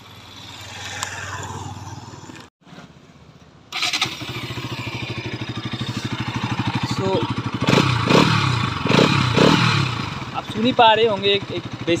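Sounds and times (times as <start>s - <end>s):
motorcycle engine starting and idling: 3.7s - 12.0s.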